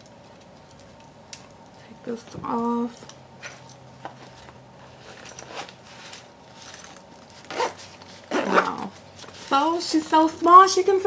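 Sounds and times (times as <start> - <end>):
rustling and handling: 0.0 - 11.0
bag zipper pulled: 7.4 - 8.9.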